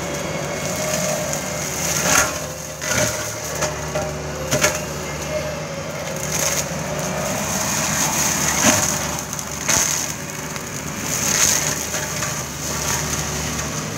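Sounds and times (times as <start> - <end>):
diesel engine under load: 0.0 - 13.9
brush being shredded: 6.0 - 13.9
wood splintering cracks: 6.1 - 13.8.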